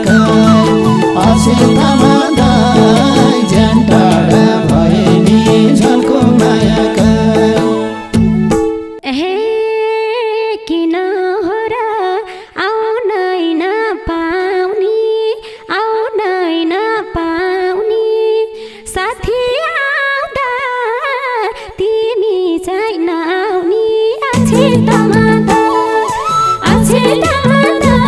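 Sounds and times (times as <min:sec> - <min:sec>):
woman's hand-cupped mouth melody: 0:00.0 - 0:06.9.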